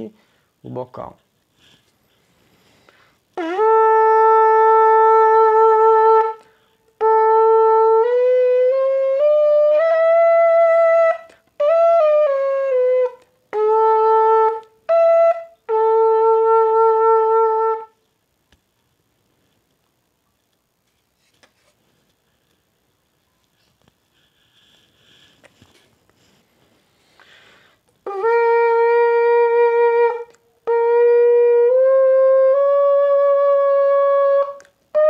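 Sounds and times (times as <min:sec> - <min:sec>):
player breathing: 0:01.5 - 0:03.3, 0:23.6 - 0:27.9
goat-horn trumpet playing: 0:03.4 - 0:06.4, 0:07.0 - 0:18.0, 0:28.0 - 0:35.0.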